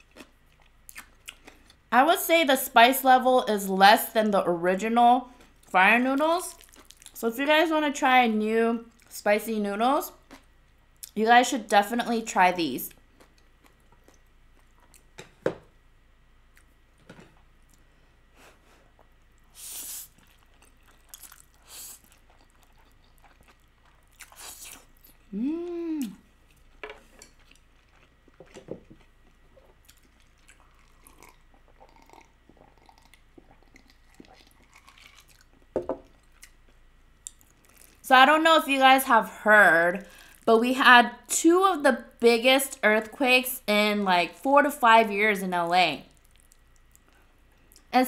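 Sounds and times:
person chewing: 0.0s - 1.8s, 6.6s - 7.2s, 13.0s - 15.2s, 18.6s - 38.0s, 46.2s - 47.9s
person humming: 25.3s - 26.2s.

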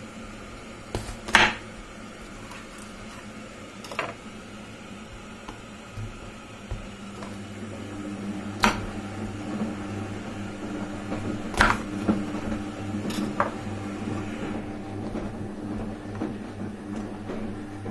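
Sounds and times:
low mechanical hum: 0.0s - 17.9s
knife striking cutting board: 1.0s - 1.7s, 11.5s - 12.0s.

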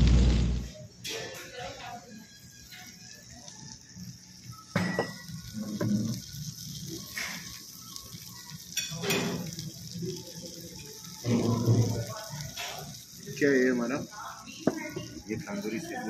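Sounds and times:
platter sizzling on hot plate: 0.0s - 16.0s
dishes clattering: 4.7s - 5.2s.

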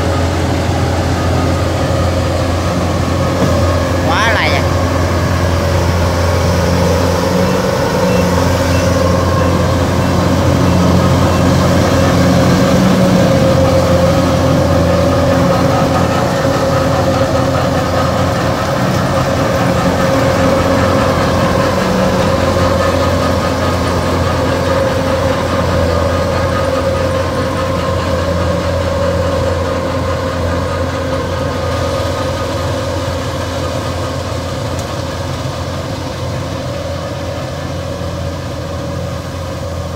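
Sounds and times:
combine harvester running: 0.0s - 39.9s.

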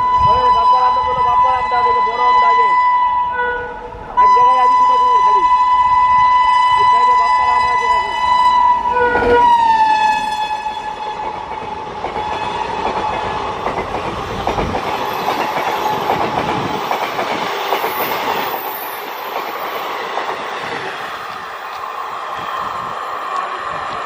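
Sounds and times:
locomotive horn: 0.0s - 11.3s
train wheels clickety-clack: 10.8s - 24.0s.

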